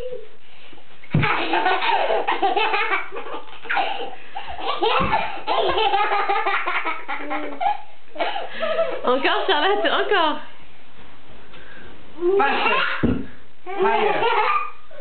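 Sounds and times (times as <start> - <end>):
baby laughing: 1.2 - 8.4, 12.4 - 13.1, 13.7 - 15.0.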